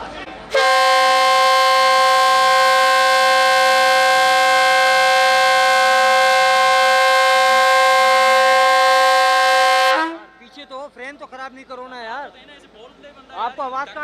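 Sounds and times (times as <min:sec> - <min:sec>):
locomotive air horn blast: 0:00.5 - 0:10.4.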